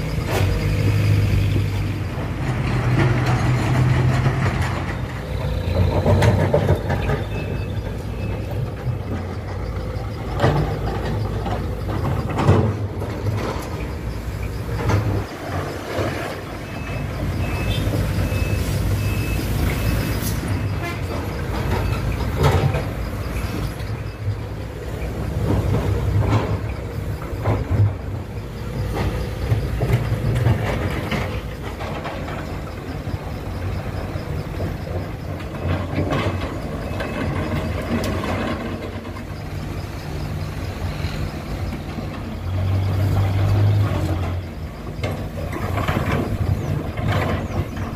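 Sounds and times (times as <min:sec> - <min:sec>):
excavator diesel engine running: 0:00.0 - 0:47.9.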